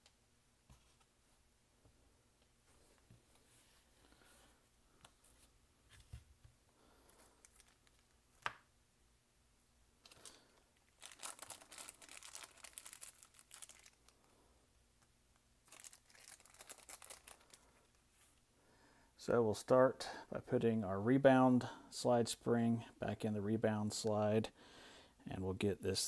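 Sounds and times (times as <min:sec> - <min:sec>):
plastic bag crinkling: 0:07.2 - 0:08.1, 0:10.0 - 0:14.3, 0:15.6 - 0:18.0.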